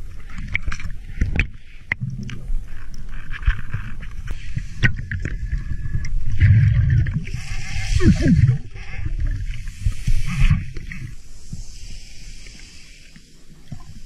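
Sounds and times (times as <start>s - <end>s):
diver exhaling bubbles underwater: 5.3s - 11.1s.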